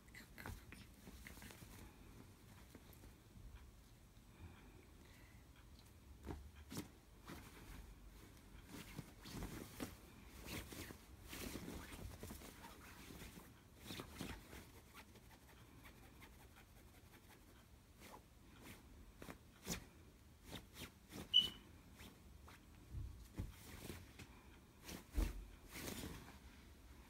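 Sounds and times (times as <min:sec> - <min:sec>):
high squeak: 0:21.3 - 0:21.6.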